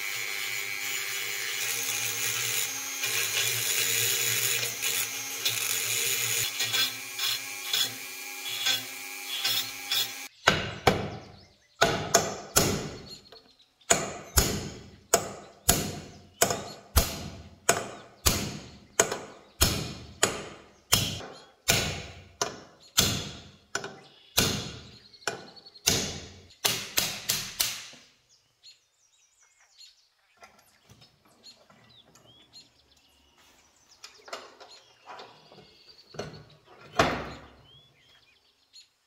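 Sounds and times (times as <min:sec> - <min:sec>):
hammer striking steel punch: 0:11.8 - 0:13.0, 0:13.9 - 0:23.5, 0:24.4 - 0:27.9.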